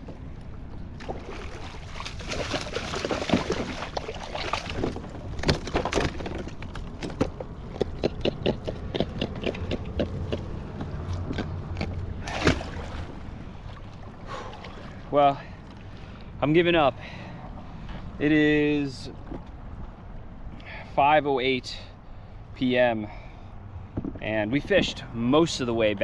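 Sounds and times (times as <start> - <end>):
water splashing against kayak: 1.0 - 6.5, 12.2 - 15.1.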